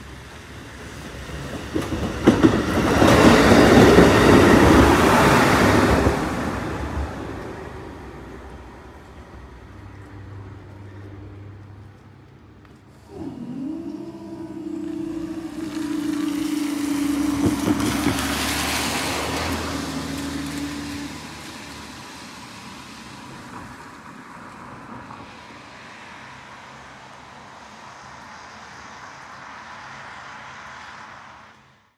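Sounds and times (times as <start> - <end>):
car passing: 0.0 - 31.9
barrier motor humming: 13.0 - 21.9.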